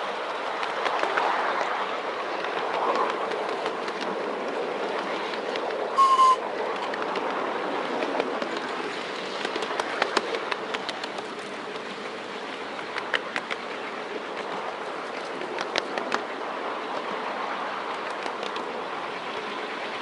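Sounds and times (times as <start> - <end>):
train wheels rumbling on rail: 0.0 - 20.0
wheels clicking over rail joints: 0.0 - 20.0
train whistle blast: 6.0 - 6.4.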